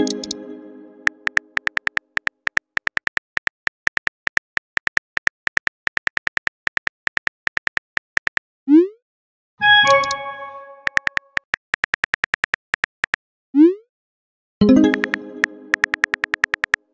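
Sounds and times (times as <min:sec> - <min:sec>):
phone keyboard typing clicks: 0:00.0 - 0:00.4, 0:01.1 - 0:08.4, 0:09.8 - 0:13.2, 0:14.7 - 0:16.9.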